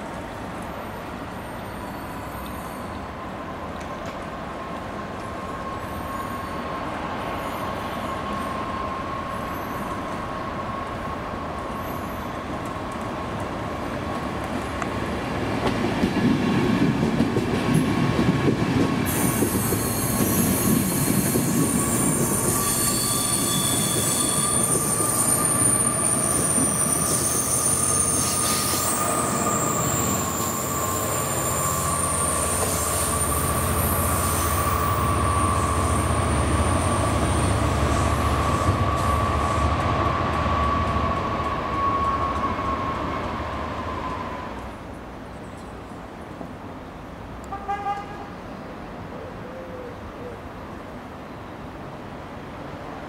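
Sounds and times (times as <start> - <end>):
diesel locomotive: 0.0 - 53.0
train wheels squealing: 0.8 - 3.4, 5.4 - 12.8, 19.0 - 44.7.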